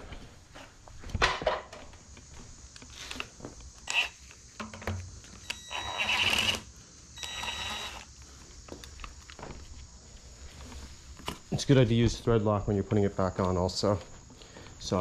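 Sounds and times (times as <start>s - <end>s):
cordless drill bursts: 3.8s - 4.2s, 5.4s - 8.1s.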